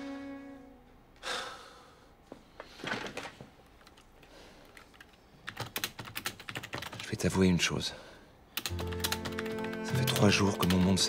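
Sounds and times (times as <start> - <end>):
keyboard keys clicking: 4.7 - 7.0, 8.6 - 11.0.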